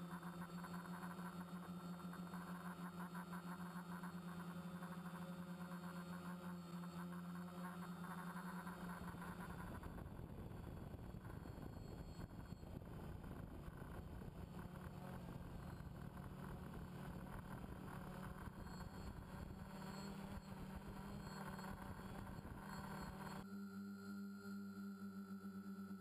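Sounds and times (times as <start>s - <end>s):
drone motors humming: 7.3s - 26.0s.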